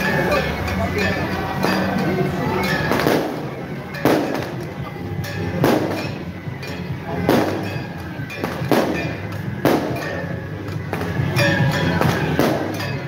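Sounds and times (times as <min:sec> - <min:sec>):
drum and gong procession music: 0:00.0 - 0:13.0
fireworks banging: 0:02.7 - 0:13.0.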